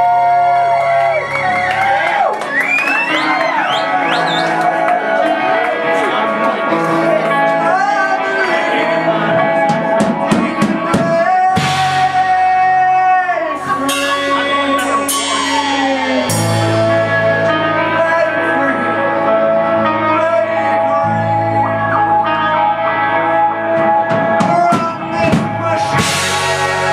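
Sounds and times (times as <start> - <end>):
electric guitar: 0.0 - 26.9
keyboards: 0.0 - 26.9
heavy bass line: 6.9 - 26.9
drum kit: 9.4 - 17.7, 23.6 - 26.9.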